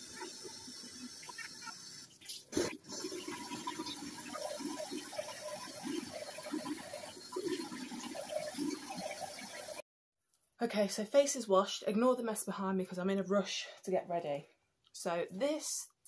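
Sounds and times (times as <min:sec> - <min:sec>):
water splashing: 0:00.0 - 0:09.8.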